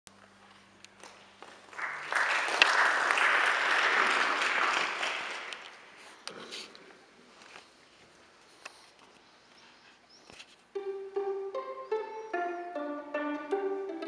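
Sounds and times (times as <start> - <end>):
audience applauding: 1.5 - 5.9.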